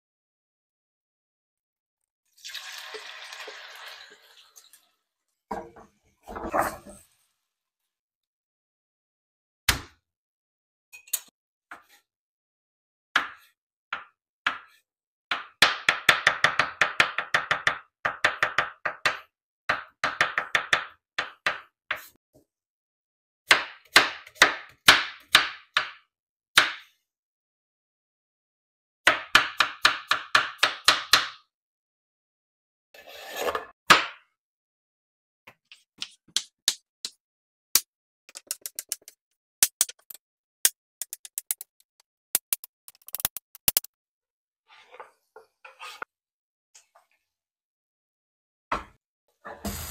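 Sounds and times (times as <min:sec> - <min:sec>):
knife chopping on cutting board: 0:13.2 - 0:14.8.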